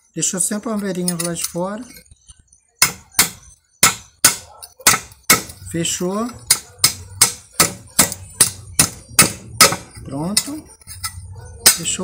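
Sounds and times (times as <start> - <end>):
hammer striking metal fitting: 2.8 - 5.7, 6.3 - 12.0.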